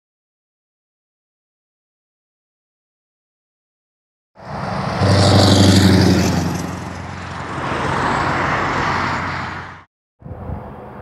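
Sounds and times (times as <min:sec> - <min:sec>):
truck engine driving past: 0:04.4 - 0:09.9.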